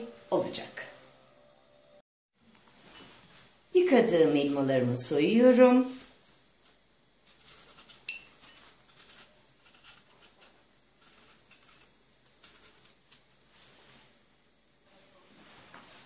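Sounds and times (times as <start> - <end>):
faint high whine: 0.0 - 2.0
knife scraping apple skin: 7.3 - 13.4.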